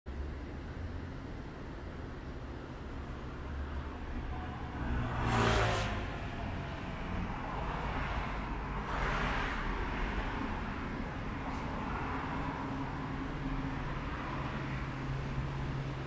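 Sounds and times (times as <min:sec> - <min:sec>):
road traffic rumble: 0:00.1 - 0:16.0
vehicle passing close by: 0:04.6 - 0:09.8.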